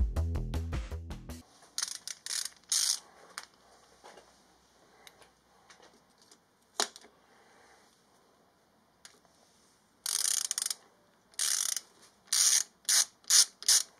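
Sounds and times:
socket ratchet clicking: 0:01.8 - 0:03.0, 0:10.1 - 0:13.9.

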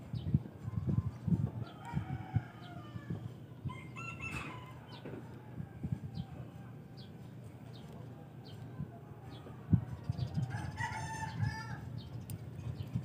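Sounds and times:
rooster crowing: 0:01.6 - 0:05.8, 0:10.5 - 0:11.9.

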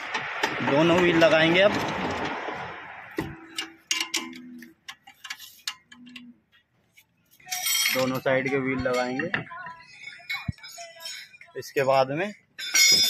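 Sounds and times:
metallic clinks of hand tools: 0:12.6 - 0:13.0.

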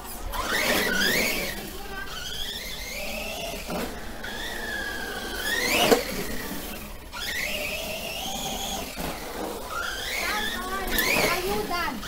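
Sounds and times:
electric motor whining: 0:00.0 - 0:12.0.

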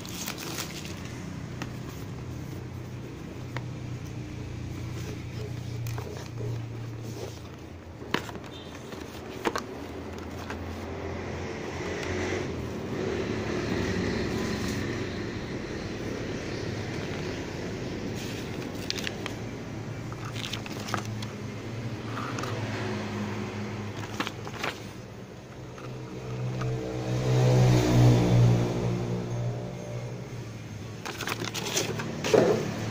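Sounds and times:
paper rustling: 0:00.0 - 0:11.0, 0:18.0 - 0:22.6, 0:23.8 - 0:26.4, 0:30.9 - 0:32.9
cardboard box clicks and knocks: 0:05.4 - 0:10.7.

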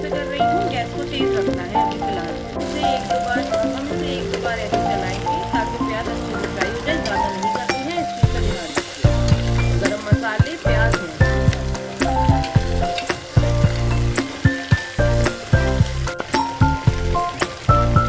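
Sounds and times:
onions sizzling in hot oil: 0:00.0 - 0:18.0
instrumental music with low beat: 0:07.8 - 0:18.0.

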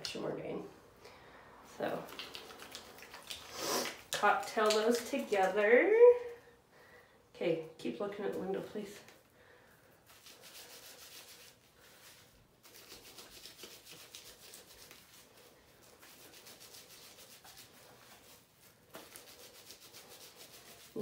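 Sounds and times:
fingers rubbing wet hair: 0:01.8 - 0:05.7, 0:10.0 - 0:21.0.

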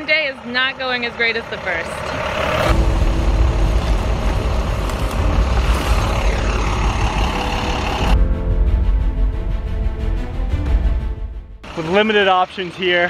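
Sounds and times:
bus engine rumbling: 0:00.0 - 0:08.2, 0:11.6 - 0:13.0
music: 0:02.7 - 0:11.7.

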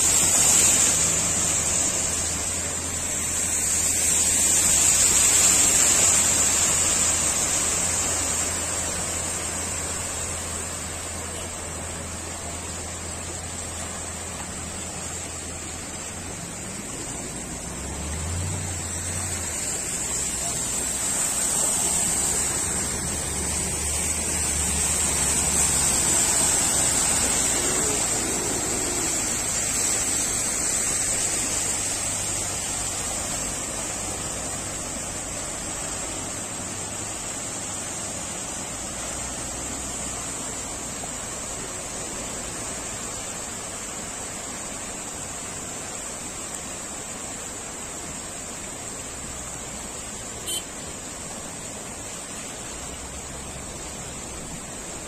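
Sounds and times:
floodwater rushing: 0:00.0 - 0:55.0
vehicles splashing through water: 0:00.0 - 0:55.0.

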